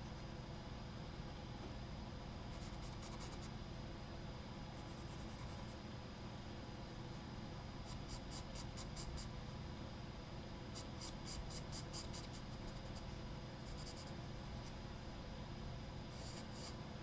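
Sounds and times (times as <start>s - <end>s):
pencil scratching on paper: 2.6s - 3.5s, 10.8s - 13.1s, 13.7s - 14.2s, 16.2s - 16.8s.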